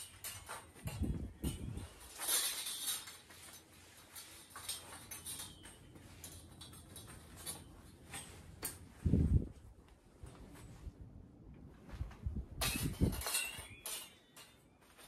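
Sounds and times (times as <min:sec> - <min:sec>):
metal blade clinking and scraping: 0:00.0 - 0:08.9, 0:12.6 - 0:14.8.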